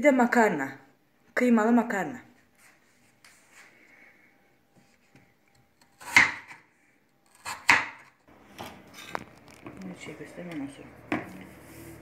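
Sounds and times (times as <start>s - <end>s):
knife chopping onto wooden board: 6.0s - 6.6s, 7.5s - 8.1s.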